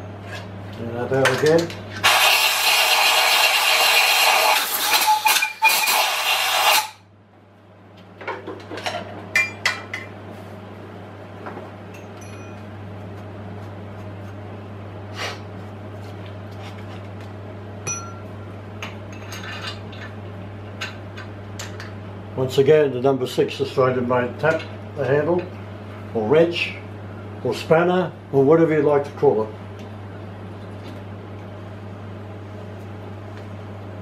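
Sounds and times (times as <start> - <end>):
steady low hum: 7.0 - 34.0.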